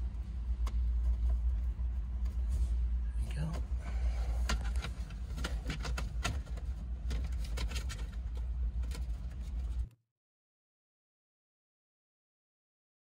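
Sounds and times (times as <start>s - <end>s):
steady low hum: 0.0s - 9.9s
plastic parts clicking and tapping: 4.4s - 9.8s.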